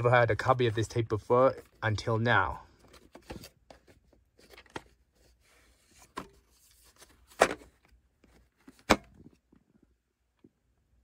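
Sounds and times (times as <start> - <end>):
tape sleeve handling clicks and rustles: 2.8 - 5.0.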